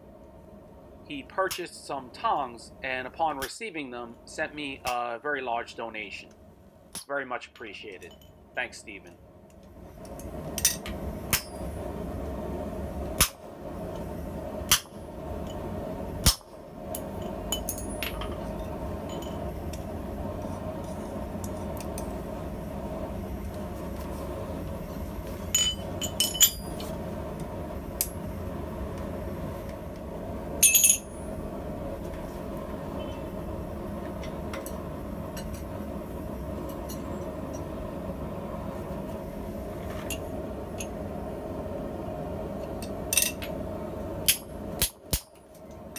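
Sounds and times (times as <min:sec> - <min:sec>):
metal clinking on anvil: 0:25.6 - 0:26.8, 0:30.6 - 0:31.1.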